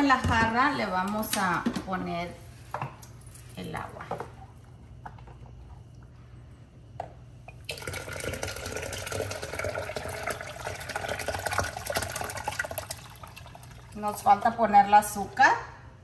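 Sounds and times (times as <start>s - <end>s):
liquid pouring into pitcher: 7.5s - 14.4s.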